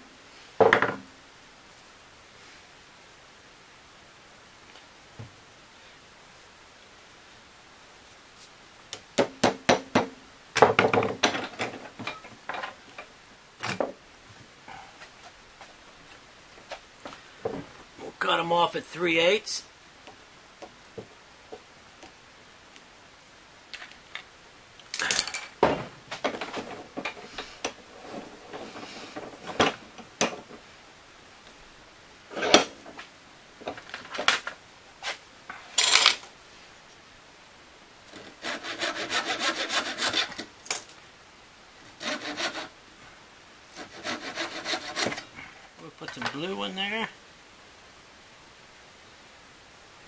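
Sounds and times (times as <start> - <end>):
hand saw cutting wood: 38.1 - 40.5, 41.9 - 42.8, 43.7 - 45.3.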